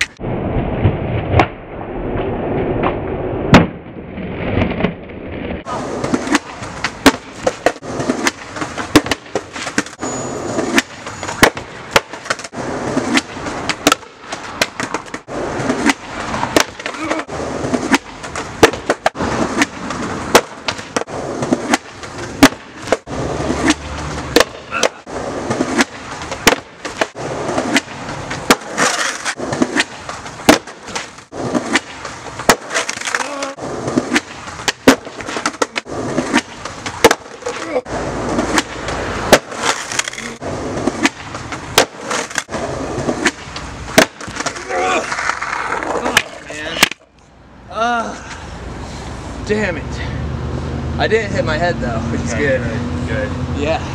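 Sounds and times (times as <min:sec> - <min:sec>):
skateboard rolling on concrete: 0:00.0 - 0:47.5
skateboard clacking on ground: 0:05.7 - 0:47.1.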